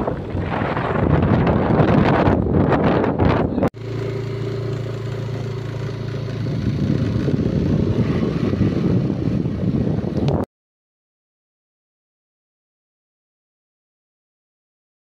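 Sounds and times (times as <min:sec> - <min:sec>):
wind buffeting microphone: 0:00.0 - 0:03.7, 0:06.3 - 0:10.5
motorcycle engine running: 0:00.0 - 0:10.4
wind and road rush: 0:00.0 - 0:10.5.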